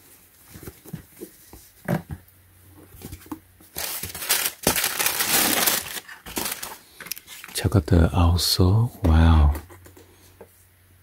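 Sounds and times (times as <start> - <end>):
tissue paper rustling and crinkling: 3.7 - 7.6.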